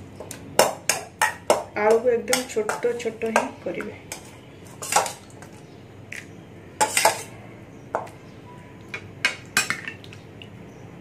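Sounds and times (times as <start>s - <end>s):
spoon scraping metal bowl: 1.9s - 5.6s, 6.8s - 7.3s.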